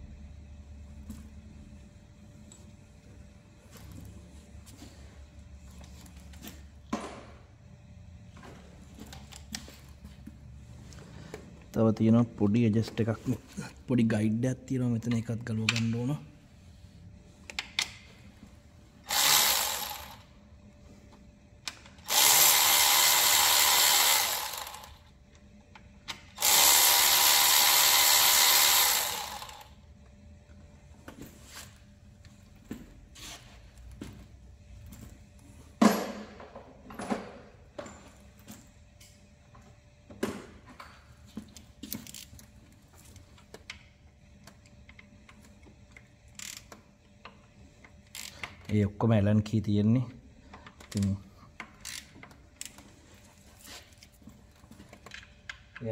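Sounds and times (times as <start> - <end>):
power tool bursts: 19.0 - 20.3, 22.0 - 25.0, 26.4 - 29.7.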